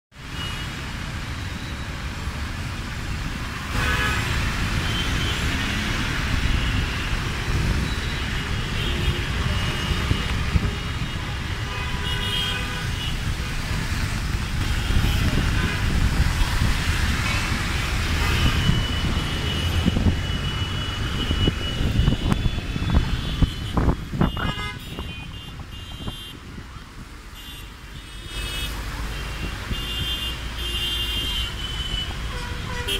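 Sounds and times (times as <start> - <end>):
tyres hissing on wet road: 0.2 - 11.7, 12.7 - 23.2
engines rumbling: 0.2 - 32.9
vehicle horns honking: 3.7 - 5.8, 8.0 - 13.3, 17.2 - 26.4, 27.4 - 32.9.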